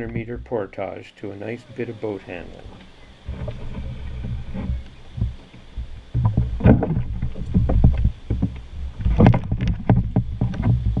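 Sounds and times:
rushing river water: 0.6 - 11.0
pole and boots knocking on canoe: 3.3 - 11.0.

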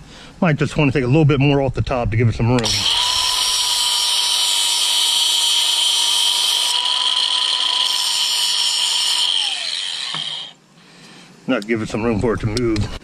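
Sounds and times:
angle grinder whining: 2.6 - 10.6.

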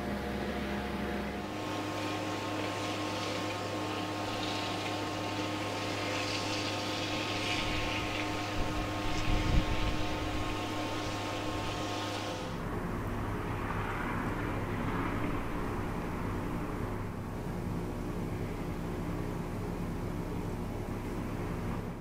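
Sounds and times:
mechanical hum: 0.0 - 22.0
hiss: 1.5 - 12.6.

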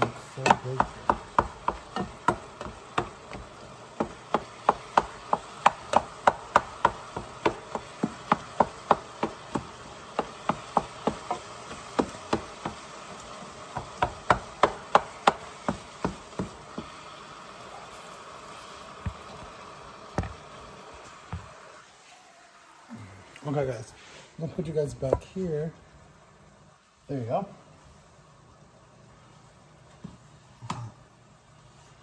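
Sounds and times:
faint steady hiss: 0.0 - 32.0
utensil knocking against a pan: 0.4 - 12.8.

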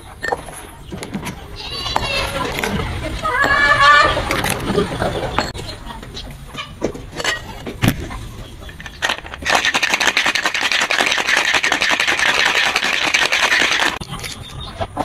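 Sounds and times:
ice cubes rattling in shaker: 8.8 - 14.0.

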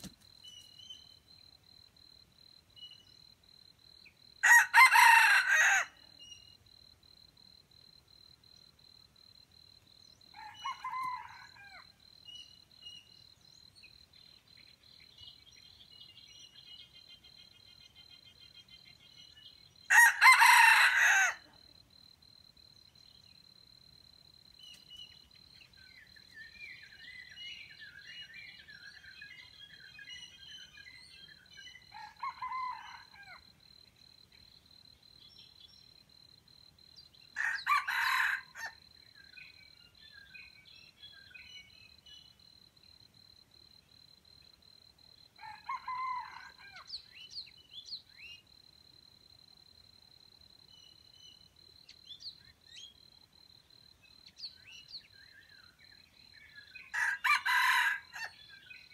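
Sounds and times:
roosters crowing: 4.4 - 6.0, 19.9 - 21.5, 37.4 - 38.8, 56.9 - 58.3.

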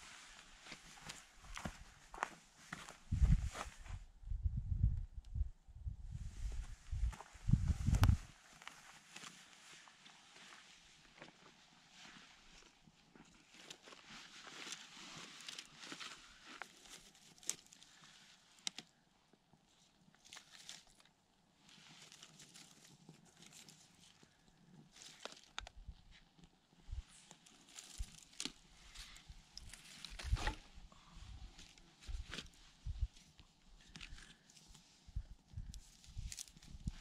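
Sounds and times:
footsteps crunching on trail: 0.0 - 3.9.

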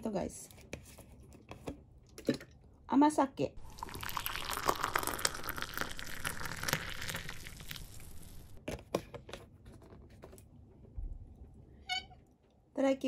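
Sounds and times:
drink pouring into glass: 3.6 - 8.6.

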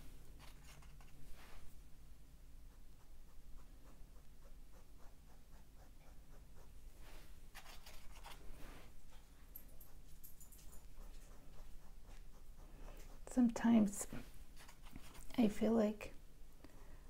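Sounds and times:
brush bristles scratching canvas: 3.6 - 8.8, 14.6 - 15.4.

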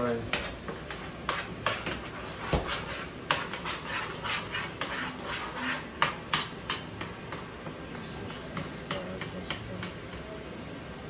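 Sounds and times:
utensil knocking against pan: 6.0 - 10.0.

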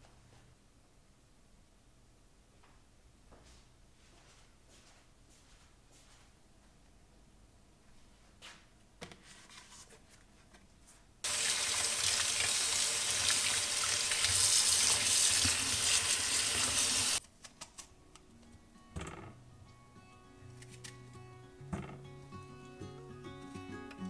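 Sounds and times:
tap water running in sink: 11.3 - 17.2.

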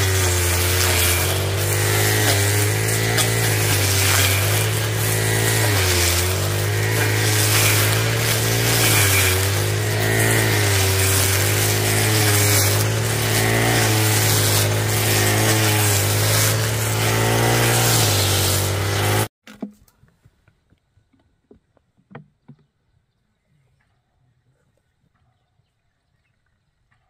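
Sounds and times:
brush cutter running: 0.0 - 19.3.

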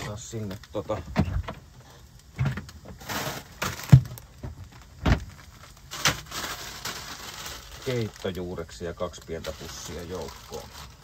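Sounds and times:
plastic bag rustling: 0.0 - 11.0
knocks and thumps: 0.9 - 1.7, 2.3 - 5.4.

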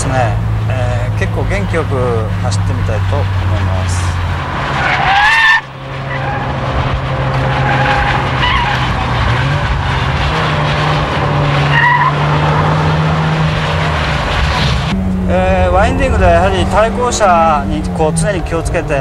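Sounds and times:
turbocharged car engine pulling hard: 0.0 - 19.0
tyre squeals: 7.3 - 9.6, 11.6 - 12.8.

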